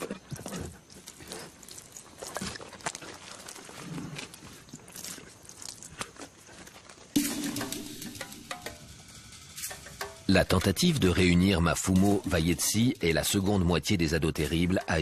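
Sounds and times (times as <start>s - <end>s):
crunching and rustling: 0.0s - 7.2s.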